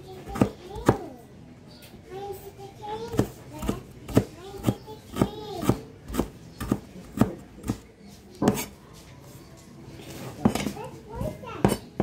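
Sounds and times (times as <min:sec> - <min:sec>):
child's voice: 0:00.0 - 0:01.3, 0:02.0 - 0:05.9, 0:10.5 - 0:11.9.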